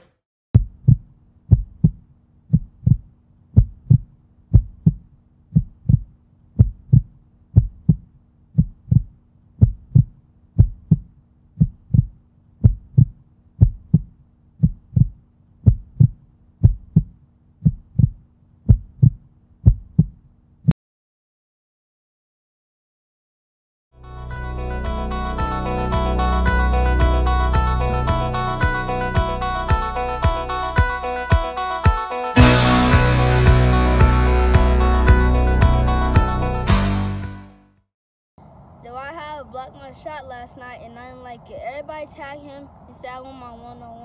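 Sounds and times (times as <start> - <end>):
heartbeat thumps: 0.6 - 20.2.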